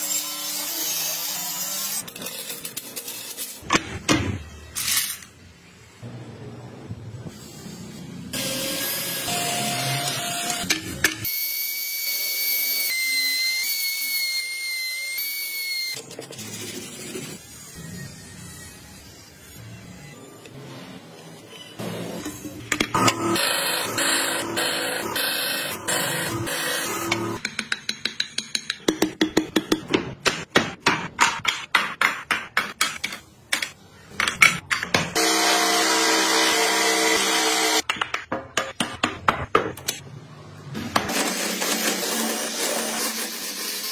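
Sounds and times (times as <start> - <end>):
hammer striking chisel: 27.1 - 35.2.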